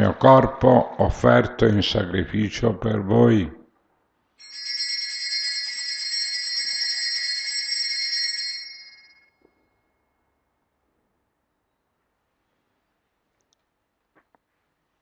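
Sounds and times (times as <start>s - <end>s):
altar bells jingling: 4.4s - 9.3s.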